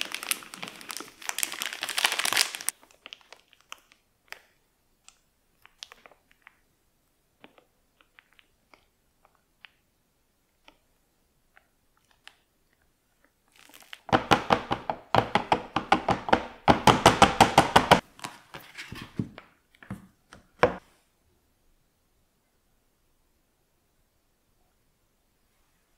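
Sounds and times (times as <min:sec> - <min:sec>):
mould knocking on cutting board: 0:14.1 - 0:18.0.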